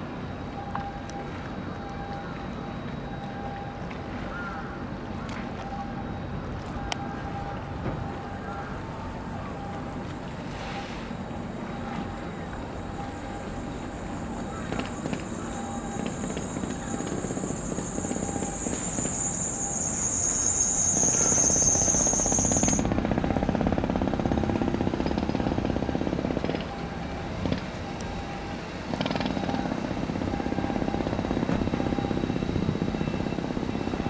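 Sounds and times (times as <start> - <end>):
machinery rumble with fast pulse: 4.7 - 34.0
high thin whine: 9.7 - 34.0.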